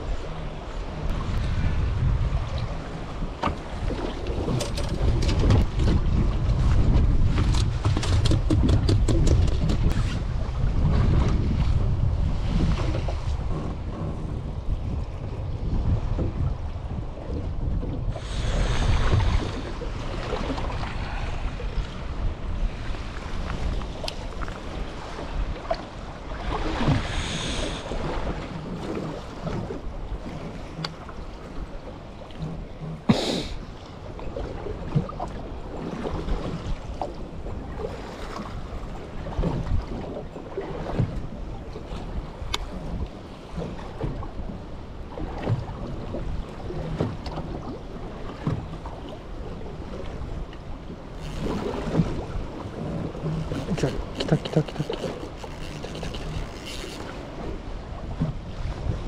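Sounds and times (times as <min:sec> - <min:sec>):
water washing around boat: 0:00.0 - 0:59.0
wind buffeting microphone: 0:00.0 - 0:59.0
knocks on boat: 0:03.4 - 0:03.7, 0:04.4 - 0:10.2, 0:12.8 - 0:14.6, 0:15.8 - 0:16.5.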